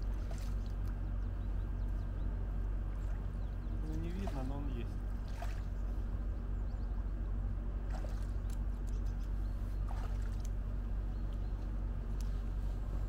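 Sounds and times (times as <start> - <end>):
feet splashing in water: 0.0 - 0.8, 2.9 - 5.9, 7.8 - 8.4, 9.8 - 10.6
low hum: 0.0 - 13.0.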